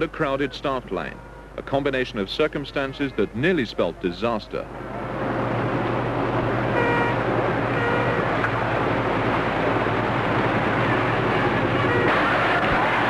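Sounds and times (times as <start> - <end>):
wind: 0.0 - 13.0.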